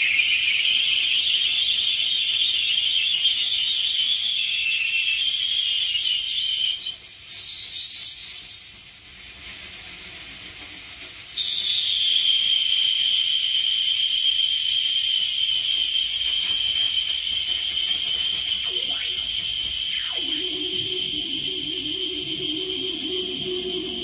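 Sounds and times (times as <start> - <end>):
high hissing electronic whine: 0.0 - 9.2, 11.3 - 24.0
warbling electronic sweeps: 18.1 - 24.0.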